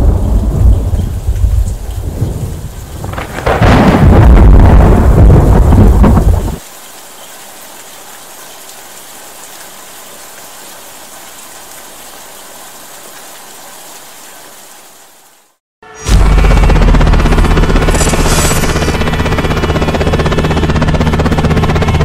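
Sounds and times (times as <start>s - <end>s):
thunder rumble: 0.0s - 6.6s, 16.1s - 20.9s
steady rain: 0.0s - 15.6s.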